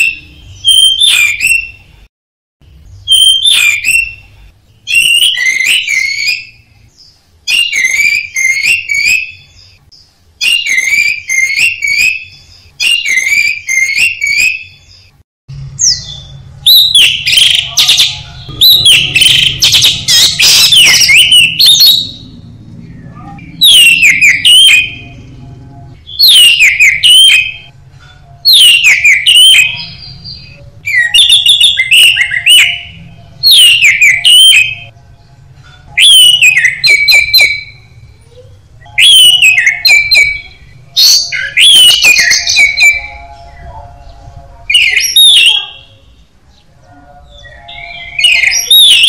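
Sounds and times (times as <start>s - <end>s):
thrush singing whistles: 0.0s - 1.8s, 3.0s - 6.7s, 7.5s - 9.8s, 10.4s - 14.8s, 15.9s - 22.2s, 23.4s - 25.1s, 26.1s - 27.7s, 28.5s - 34.9s, 36.0s - 38.0s, 38.8s - 43.3s, 44.7s - 46.0s, 47.5s - 49.0s.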